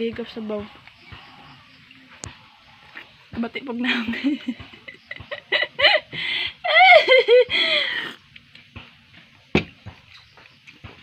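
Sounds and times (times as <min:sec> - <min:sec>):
woman laughing: 0:03.8 - 0:08.2.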